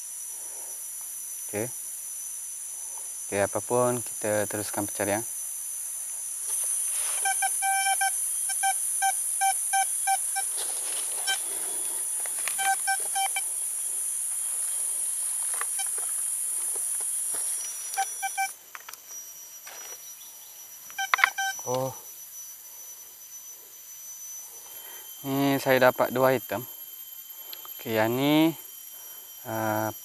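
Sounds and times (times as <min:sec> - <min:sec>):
high insect drone: 0:00.0 - 0:30.0
metal detector beeps: 0:06.5 - 0:18.6, 0:20.9 - 0:21.9, 0:24.6 - 0:30.0.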